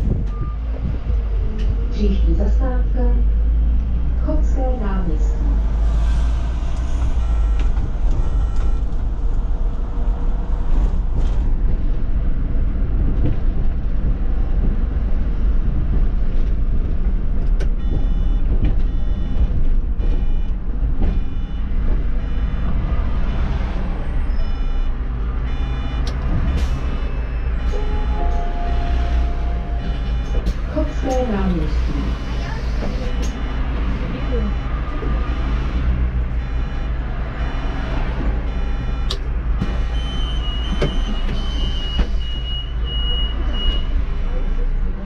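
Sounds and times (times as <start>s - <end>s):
bus engine and road rumble: 0.0s - 45.0s
short electronic beeps: 7.1s - 8.9s, 25.5s - 31.4s, 36.4s - 37.8s.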